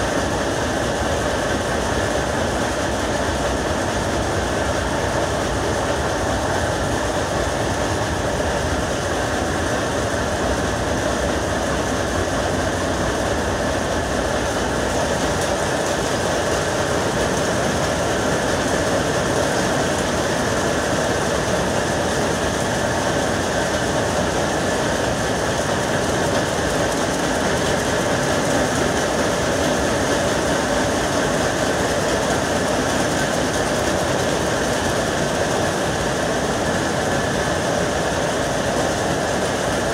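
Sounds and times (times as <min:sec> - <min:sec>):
power looms clattering: 0:00.0 - 0:39.9.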